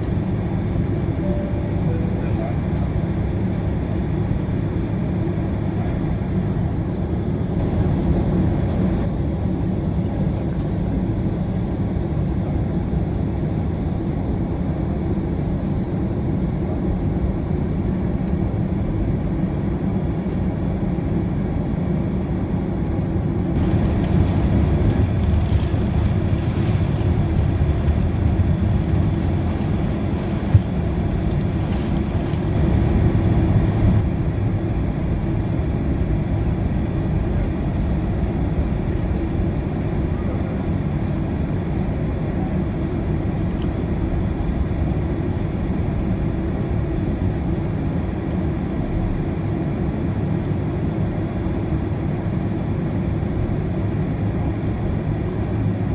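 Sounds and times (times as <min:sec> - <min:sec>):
airplane cabin rumble: 0:00.0 - 0:55.9.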